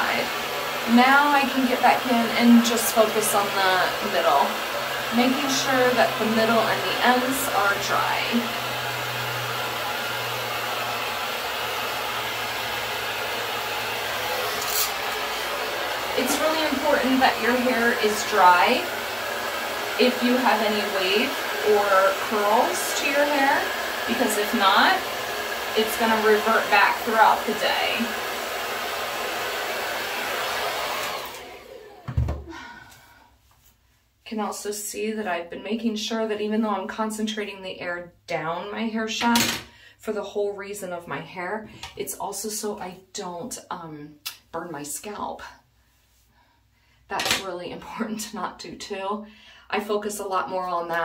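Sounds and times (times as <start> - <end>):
hair dryer running: 0.0 - 33.1
thump: 32.0 - 32.5.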